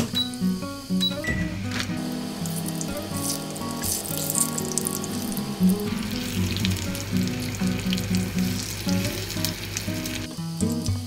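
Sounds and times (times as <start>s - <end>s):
background music: 0.0s - 11.0s
pancakes sizzling in oil: 1.7s - 11.0s.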